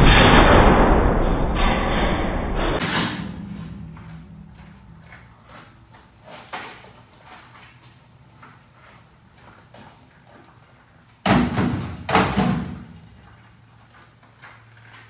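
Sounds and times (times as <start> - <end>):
low rumble: 0.0 - 6.2.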